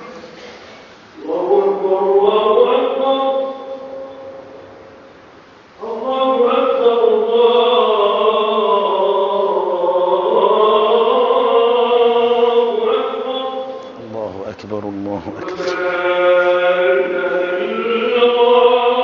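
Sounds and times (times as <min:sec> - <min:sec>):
man chanting call to prayer: 0:05.8 - 0:19.0.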